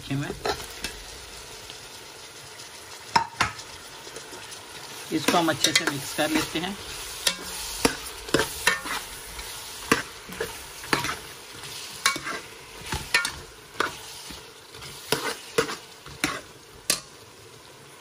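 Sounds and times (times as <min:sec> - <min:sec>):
vegetables sizzling in oil: 0:00.0 - 0:18.0
spoon clinking and scraping pot: 0:05.2 - 0:17.1.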